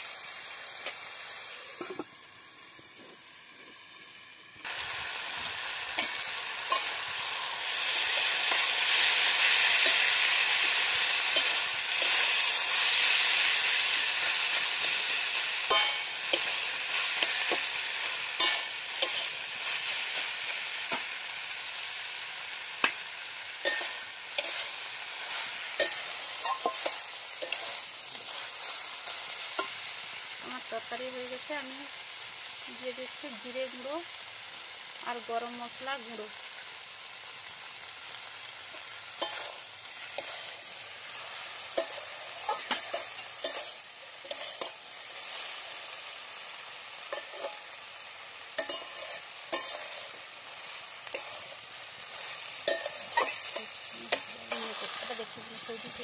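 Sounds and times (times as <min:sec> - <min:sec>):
food sizzling in a wok: 0:00.0 - 0:56.0
metal spatula scraping a pan: 0:06.0 - 0:21.2, 0:23.6 - 0:29.8, 0:38.7 - 0:45.6, 0:47.0 - 0:47.7, 0:48.6 - 0:56.0
spatula clicking on a pan: 0:48.6 - 0:49.0.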